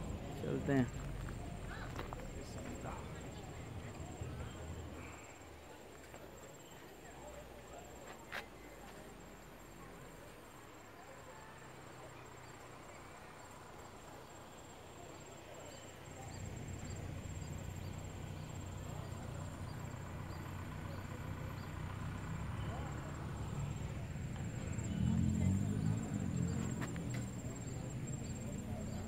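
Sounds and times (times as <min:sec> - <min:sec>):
insects chirping: 0:00.0 - 0:29.0.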